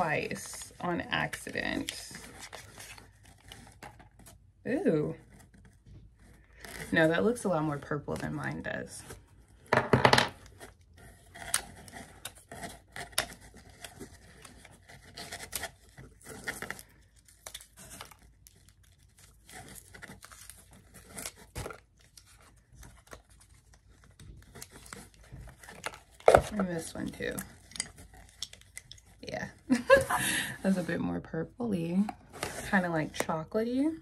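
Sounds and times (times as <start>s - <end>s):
cardboard packaging rustling and tearing: 0.0s - 9.7s, 10.4s - 31.0s.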